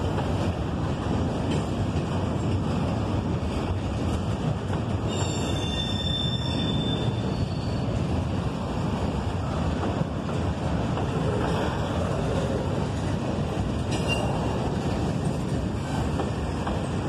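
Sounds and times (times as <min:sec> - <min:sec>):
train wheels rumbling on rail: 0:00.0 - 0:17.0
metallic wheel squeal: 0:05.1 - 0:07.9.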